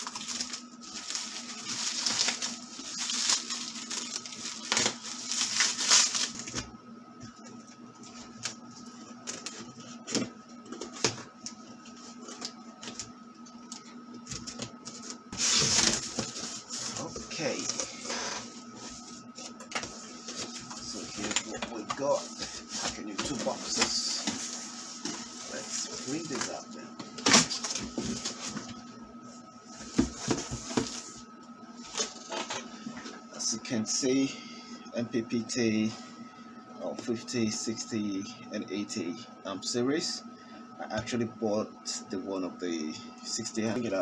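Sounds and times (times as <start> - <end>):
cardboard scraping and rustling: 0.0 - 6.6, 14.4 - 26.6, 29.7 - 31.2
faint steady hum: 0.0 - 44.0.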